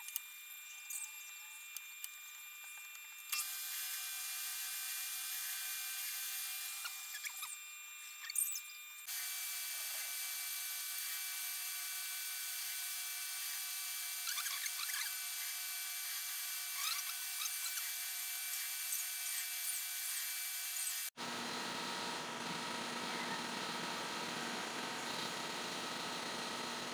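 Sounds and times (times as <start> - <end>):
scratchy cutting chirps: 6.7 - 8.8, 14.2 - 21.1.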